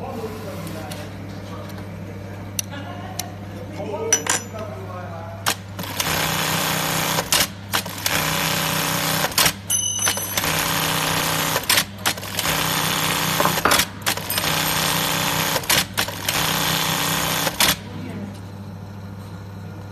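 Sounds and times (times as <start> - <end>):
steady low hum: 0.0 - 5.5.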